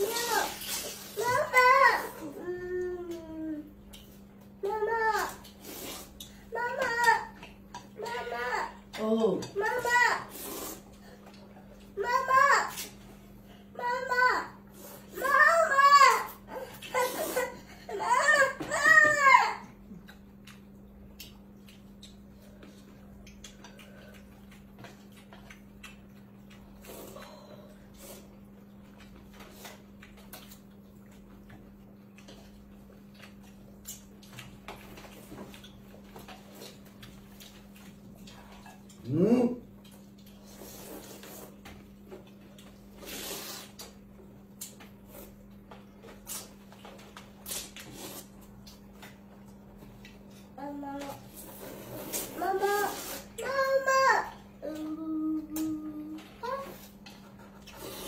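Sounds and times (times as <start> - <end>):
people slurping noodles: 5.6 - 6.3, 10.2 - 11.1, 17.0 - 17.6, 40.4 - 41.6, 42.9 - 43.9, 47.5 - 48.4, 51.3 - 53.4, 57.6 - 58.0.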